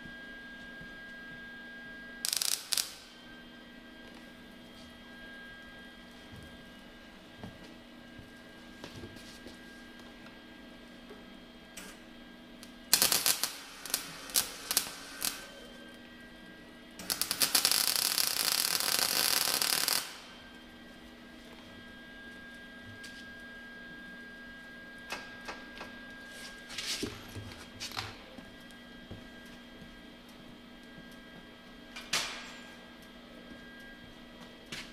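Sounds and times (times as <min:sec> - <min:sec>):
welding arc crackling: 0:02.2 - 0:04.6, 0:11.7 - 0:16.1, 0:16.9 - 0:21.0.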